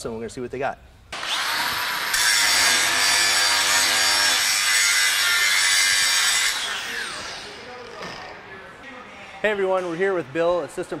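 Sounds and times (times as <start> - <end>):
angle grinder whine: 1.2 - 8.3
grinder disc grinding steel: 1.2 - 8.4.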